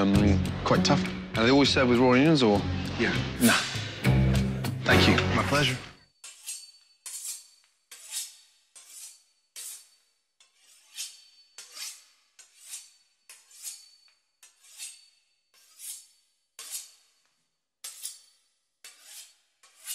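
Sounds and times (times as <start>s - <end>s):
knife sawing through pastry crust: 6.2s - 17.2s, 17.8s - 19.9s.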